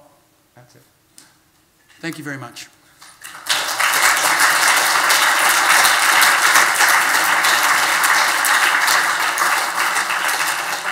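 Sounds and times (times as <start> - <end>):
audience applause: 3.2 - 10.9.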